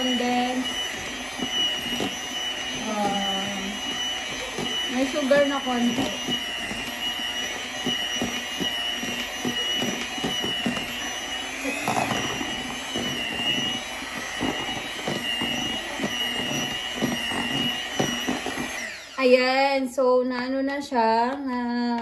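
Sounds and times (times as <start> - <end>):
electric hand mixer whining: 0.0 - 20.6.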